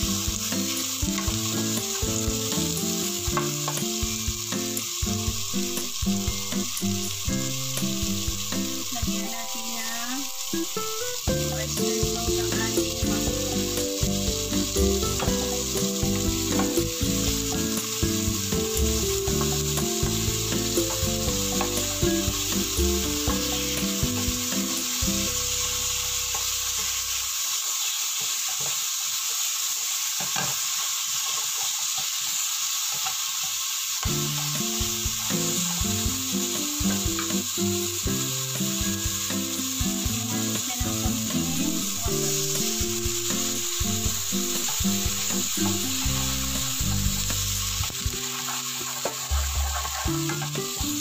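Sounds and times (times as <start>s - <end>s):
food sizzling in a frying pan: 0.0s - 51.0s
wooden spatula scraping pan: 48.2s - 50.6s.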